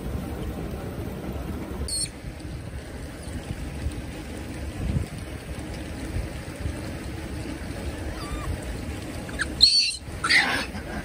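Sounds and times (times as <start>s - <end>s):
steady low rumble: 0.0s - 11.0s
faint rising animal call: 8.0s - 8.6s
short high-pitched animal calls: 9.3s - 10.7s.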